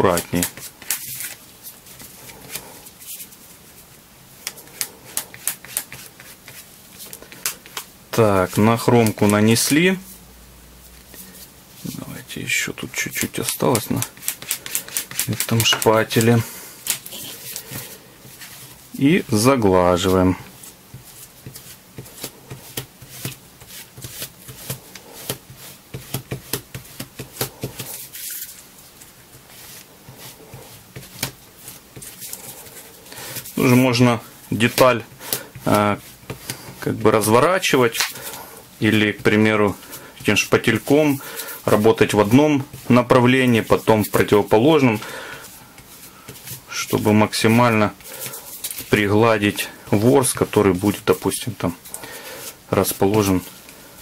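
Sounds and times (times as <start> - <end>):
spatula scraping leather: 13.2 - 18.8, 19.4 - 28.6.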